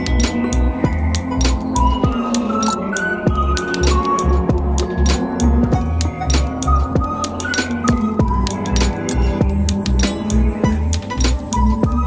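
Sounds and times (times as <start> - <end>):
bright chiming melody: 0.0 - 12.0
music with pulsing beat: 0.0 - 12.0
sharp percussive clicks: 0.0 - 12.0.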